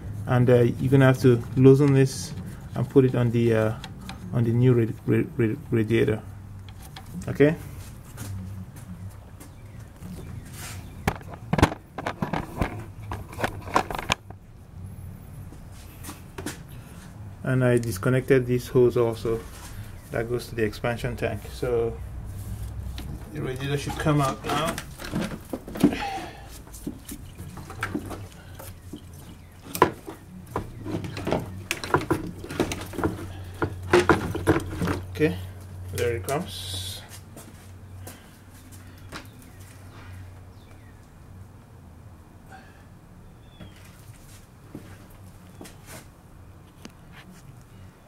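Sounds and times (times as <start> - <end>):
plastic parts knocking and scraping: 11.0 - 14.4, 23.0 - 35.2
sharp clicks and knocks: 11.0 - 14.4.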